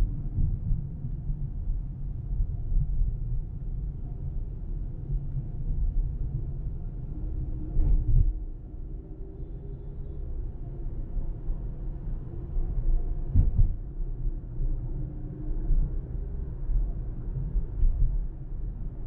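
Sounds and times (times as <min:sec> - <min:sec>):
short thump: 0:13.3 - 0:13.8.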